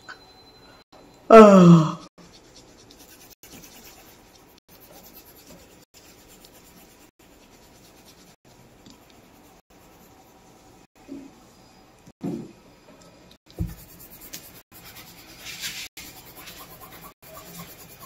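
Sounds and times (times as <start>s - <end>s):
pencil scratching on paper: 2.2s - 10.9s, 13.5s - 18.0s.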